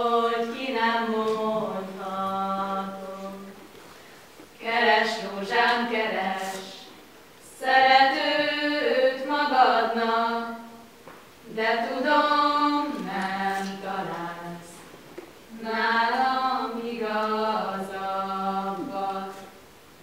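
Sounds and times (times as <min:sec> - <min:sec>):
women singing unaccompanied: 0:00.0 - 0:03.7, 0:04.6 - 0:19.7.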